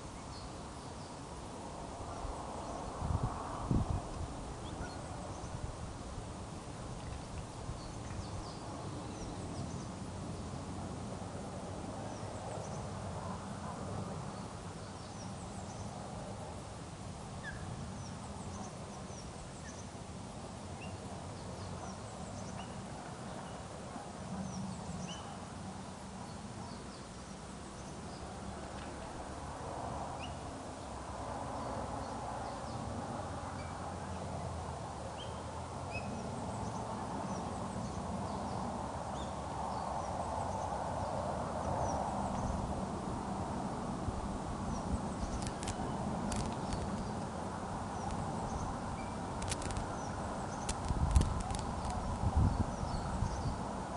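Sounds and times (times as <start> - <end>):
wind noise on microphone: 1.6 - 12.1, 39.6 - 53.9
small birds chirping: 7.7 - 10.6, 44.7 - 47.3, 47.9 - 53.6.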